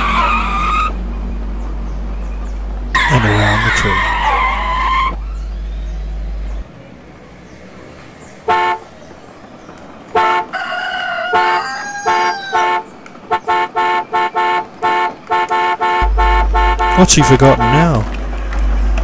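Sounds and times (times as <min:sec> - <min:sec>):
electronic horn beeps: 0:12.1 - 0:19.0
low hum: 0:16.0 - 0:19.0.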